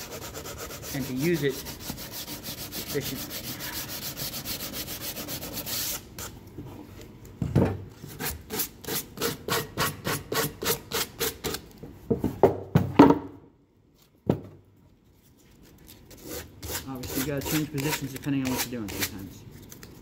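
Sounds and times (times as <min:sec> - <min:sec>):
sandpaper scraping wood: 0:00.0 - 0:06.4, 0:16.1 - 0:19.2.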